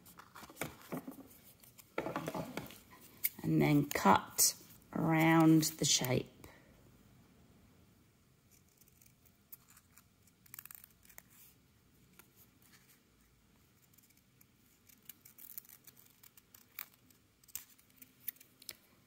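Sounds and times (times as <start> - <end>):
scissors snipping paper: 8.5 - 11.4, 13.8 - 18.8.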